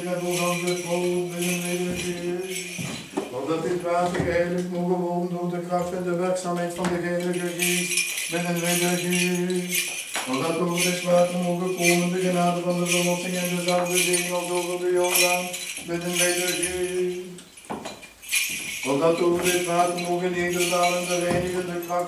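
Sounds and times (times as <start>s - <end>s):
man chanting: 0.0s - 17.4s, 18.8s - 22.0s
censer bells jingling: 0.0s - 22.0s.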